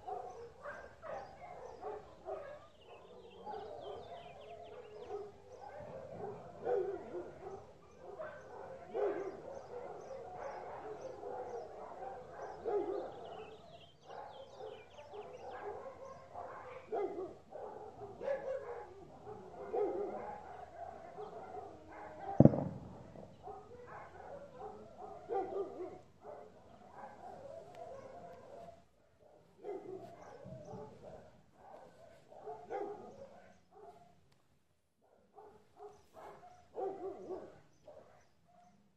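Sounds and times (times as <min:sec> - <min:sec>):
dog barking: 0:00.0 - 0:34.2, 0:35.0 - 0:38.9
sharp loud knock: 0:22.4 - 0:23.0.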